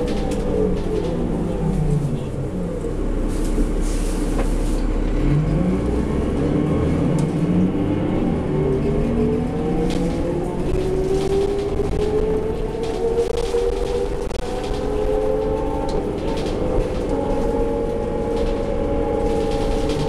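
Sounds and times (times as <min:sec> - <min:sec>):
bus diesel engine from inside: 0:00.0 - 0:20.0.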